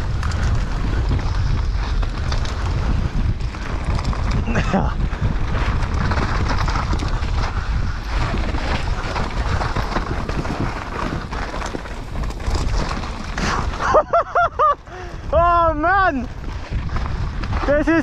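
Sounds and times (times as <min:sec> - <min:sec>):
bike rattling and knocking: 0:00.0 - 0:18.0
bike tyres crunching over gravel: 0:00.0 - 0:18.0
wind buffeting microphone: 0:00.0 - 0:18.0.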